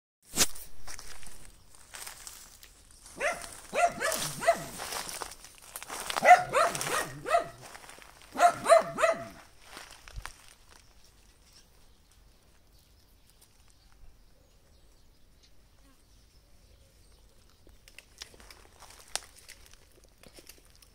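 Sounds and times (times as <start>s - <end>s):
dog barking: 3.2s - 4.9s, 6.2s - 9.5s.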